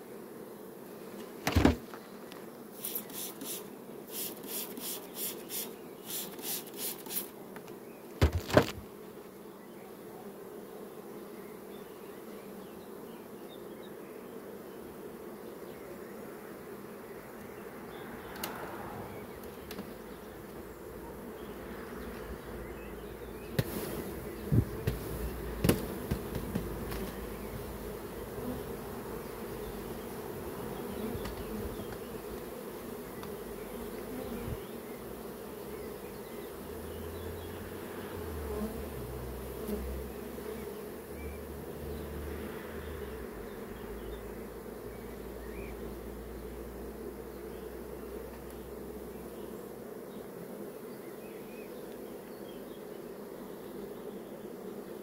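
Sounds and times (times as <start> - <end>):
honeybees buzzing: 0.0 - 55.0
knocks of wooden hive frames: 1.2 - 2.5, 7.6 - 9.0, 23.5 - 27.6, 30.9 - 32.6.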